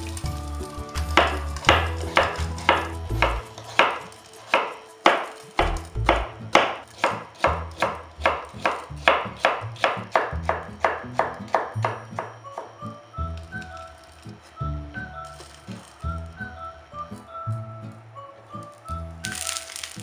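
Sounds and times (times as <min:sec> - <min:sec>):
background music: 0:00.0 - 0:20.0
knife chopping on wooden board: 0:01.2 - 0:12.7.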